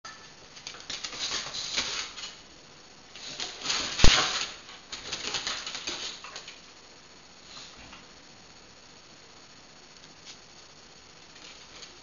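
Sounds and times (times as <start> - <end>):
dog paws scrabbling and clicking: 0.5 - 2.4, 3.1 - 6.7.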